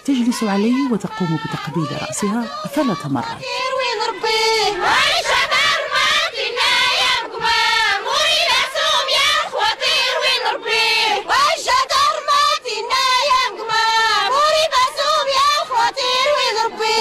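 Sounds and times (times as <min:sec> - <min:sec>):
women singing together: 0:00.0 - 0:17.0.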